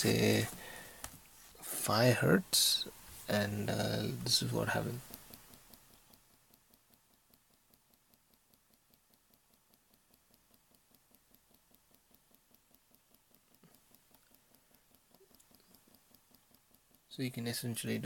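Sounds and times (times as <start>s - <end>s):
vibration motor rapid ticking: 3.9s - 17.1s.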